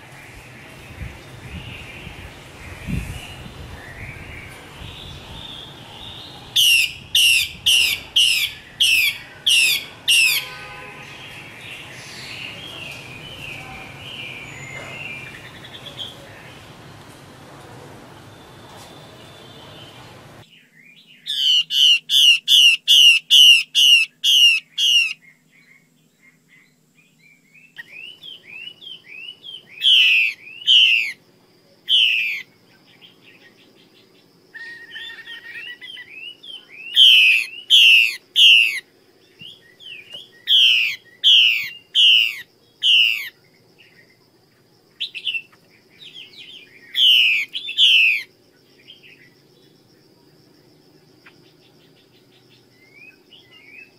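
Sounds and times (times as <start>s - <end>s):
bird calling sharp slurred notes: 1.8s - 16.8s, 21.3s - 25.2s, 27.8s - 31.2s, 31.9s - 32.5s, 34.6s - 38.8s, 39.5s - 43.4s, 45.0s - 48.3s.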